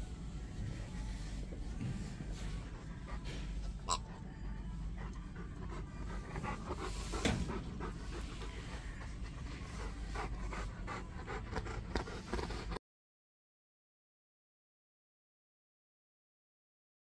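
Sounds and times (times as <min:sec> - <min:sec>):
dog panting: 0:01.7 - 0:12.8.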